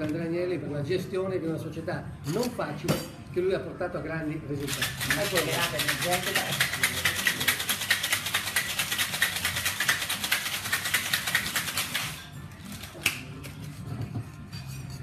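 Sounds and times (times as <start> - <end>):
cocktail shaker rattling with ice: 4.6 - 13.0.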